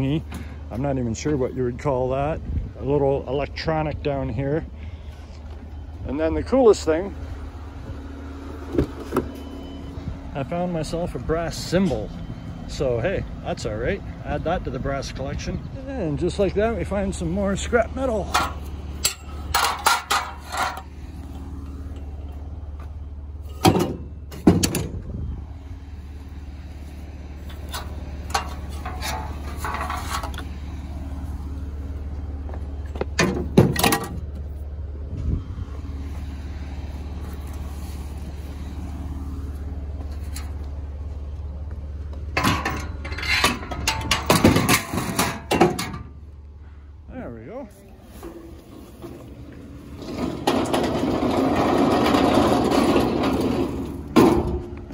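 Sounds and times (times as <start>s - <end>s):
vehicle engine idling: 0.0s - 54.9s
scrap metal clanking and scraping: 16.2s - 25.1s, 26.8s - 32.2s, 32.8s - 35.3s, 36.8s - 41.1s, 42.1s - 46.3s, 47.9s - 54.9s.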